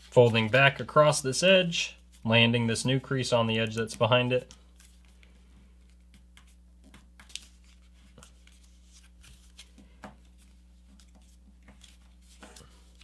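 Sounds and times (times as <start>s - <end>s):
paper being folded: 3.6s - 13.0s.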